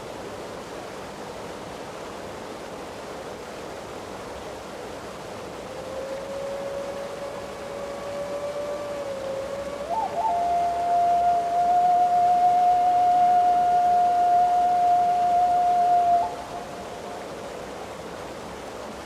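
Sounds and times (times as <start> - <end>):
whistle-like tone: 9.4 - 16.4.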